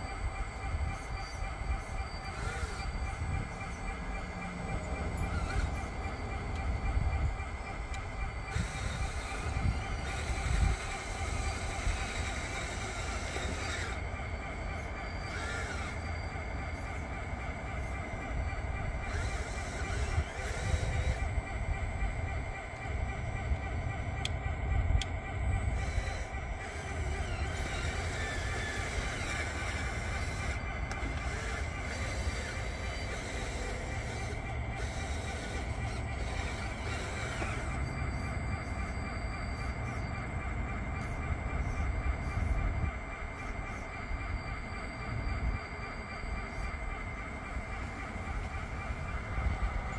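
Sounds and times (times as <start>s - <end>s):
model bulldozer whine and clatter: 0.0s - 49.9s.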